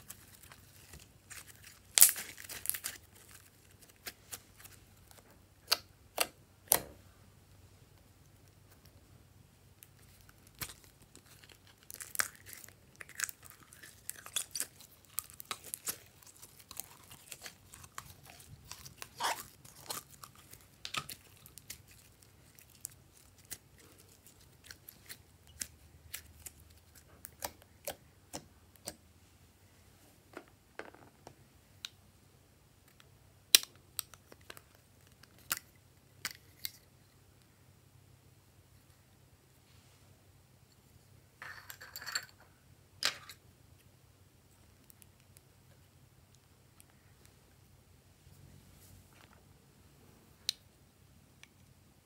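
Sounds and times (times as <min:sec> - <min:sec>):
slime crackling and popping: 0:00.0 - 0:06.9, 0:09.8 - 0:29.0.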